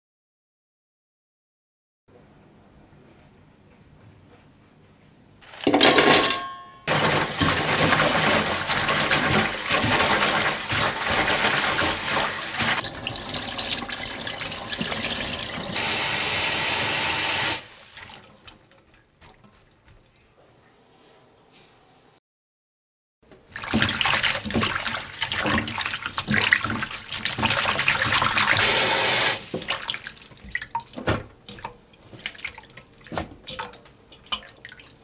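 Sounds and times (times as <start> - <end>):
tap water running into metal bowl: 6.9 - 16.2, 23.5 - 35.0
small water splashes: 17.6 - 20.1, 23.5 - 28.6, 29.4 - 35.0.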